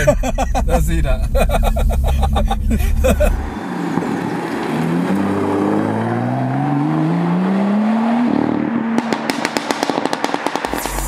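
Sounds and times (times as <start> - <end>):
car engine accelerating hard: 0.0 - 11.0
exhaust pops and crackles: 9.0 - 11.0.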